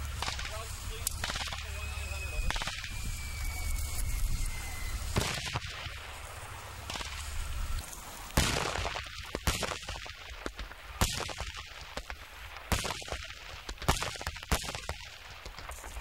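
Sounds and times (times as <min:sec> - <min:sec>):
pyrotechnic artillery bangs: 0:00.0 - 0:03.3, 0:05.1 - 0:06.1, 0:06.8 - 0:07.5, 0:08.4 - 0:16.0.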